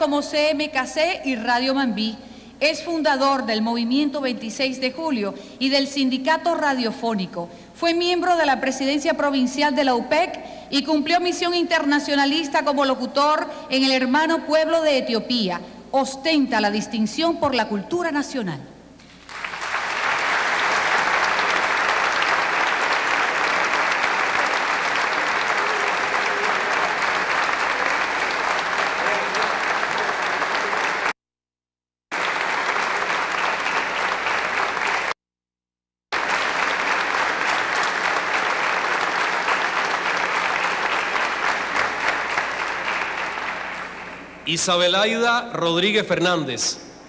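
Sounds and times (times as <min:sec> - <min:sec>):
audience applauding: 0:19.1 - 0:31.2, 0:32.1 - 0:35.2, 0:36.1 - 0:44.4.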